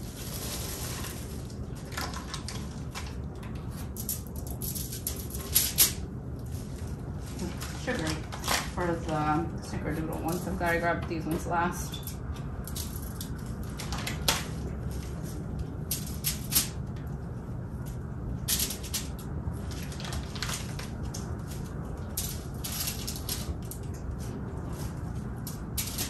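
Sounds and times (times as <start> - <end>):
plastic wrap crinkling: 0.0 - 9.5, 18.7 - 26.0
low room hum: 0.0 - 26.0.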